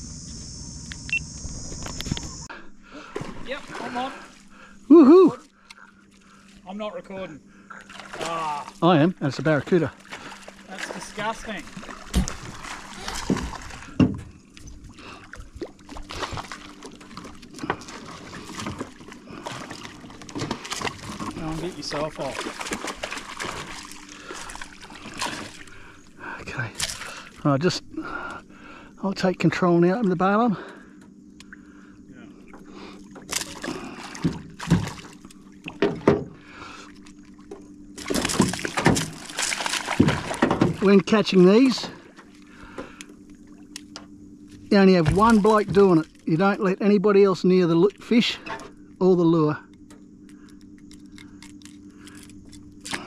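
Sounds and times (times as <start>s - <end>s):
low steady hum: 0.0s - 53.0s
water lapping against boat: 2.5s - 53.0s
knocks on boat: 13.2s - 14.3s, 35.7s - 36.4s, 40.0s - 40.8s
gear knocking on boat: 37.5s - 41.1s, 44.8s - 46.1s.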